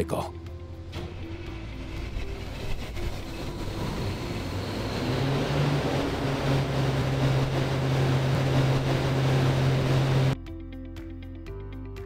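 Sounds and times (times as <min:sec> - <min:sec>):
diesel engine cranking and running: 0:00.7 - 0:10.4.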